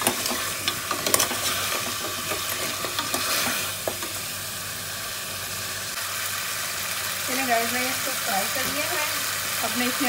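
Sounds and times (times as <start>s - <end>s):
spatula scraping a pot: 0.0s - 3.7s
bones sizzling in oil: 0.0s - 10.0s.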